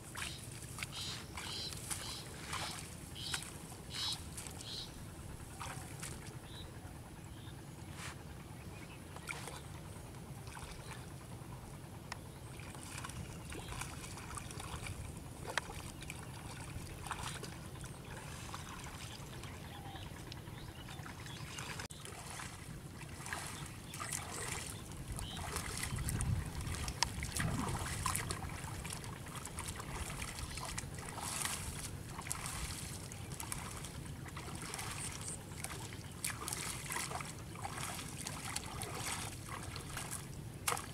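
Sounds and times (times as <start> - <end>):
water splashing and sloshing: 0.0 - 6.6, 9.1 - 40.9
low rumble: 25.0 - 30.4.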